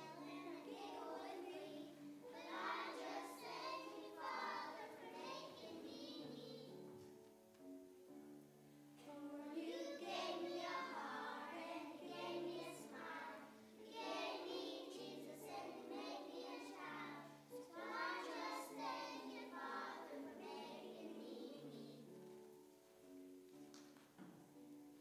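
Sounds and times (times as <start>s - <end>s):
children singing: 0.0s - 6.8s, 9.1s - 22.1s.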